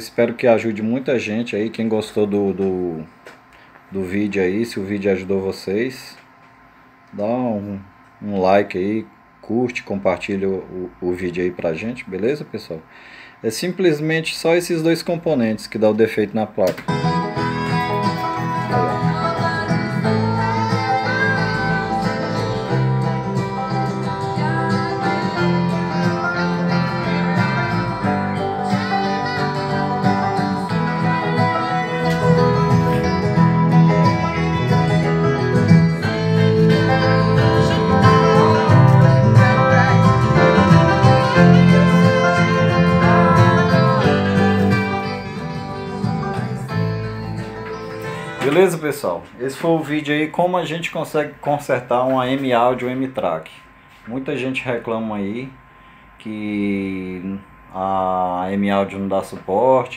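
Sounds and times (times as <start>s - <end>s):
guitar music with singing: 16.8s - 49.4s.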